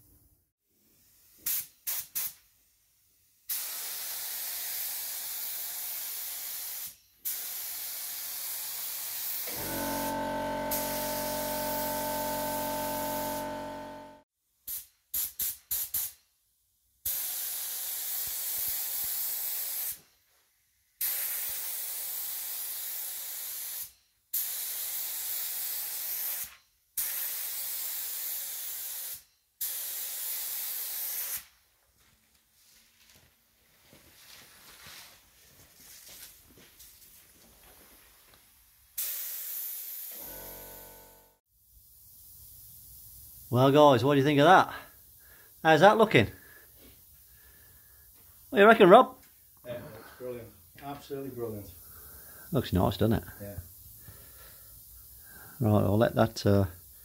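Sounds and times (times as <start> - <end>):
paint spray gun hissing: 3.5 - 14.8, 21.0 - 31.5, 39.0 - 40.4
steady humming tone: 9.5 - 14.2.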